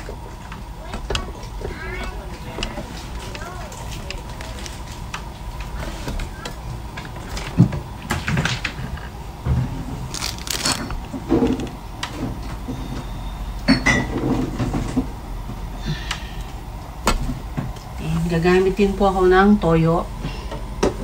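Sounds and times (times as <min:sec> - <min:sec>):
dishes clinking and knocking: 0:13.7 - 0:15.0.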